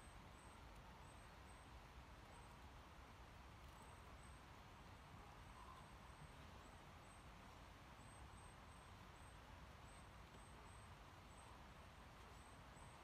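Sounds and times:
faint background hiss: 0.0 - 13.0
faint high-pitched chirp: 5.5 - 5.9.

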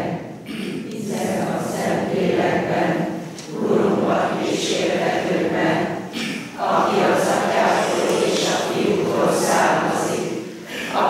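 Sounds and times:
congregation singing in unison: 0.0 - 11.0.

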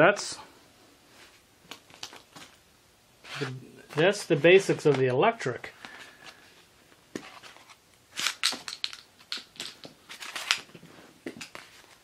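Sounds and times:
clicks rattles and rustles of handling: 7.2 - 12.0.

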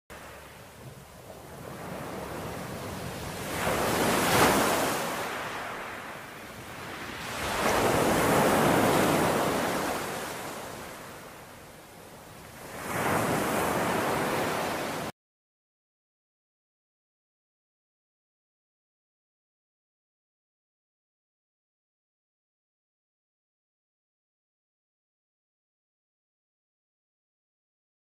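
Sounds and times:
waves washing on beach: 0.1 - 15.1.

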